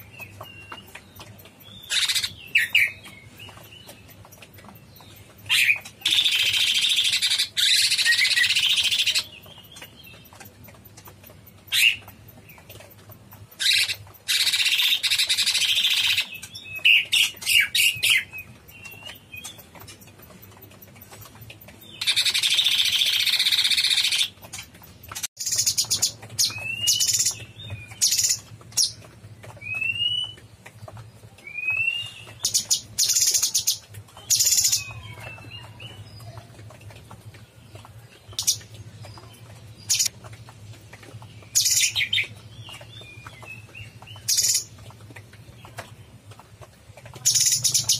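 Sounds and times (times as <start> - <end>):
bird chattering song: 0.0 - 36.5, 37.5 - 40.2, 41.1 - 46.4, 47.1 - 47.9
bird chirps: 0.0 - 36.5.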